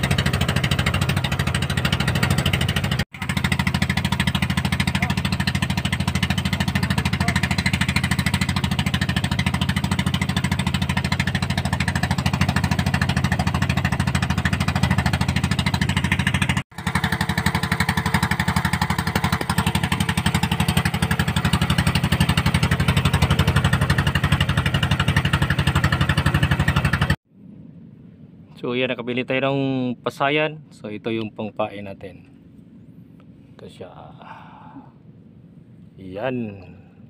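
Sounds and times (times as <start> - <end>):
boat engine puttering: 0.0 - 27.2.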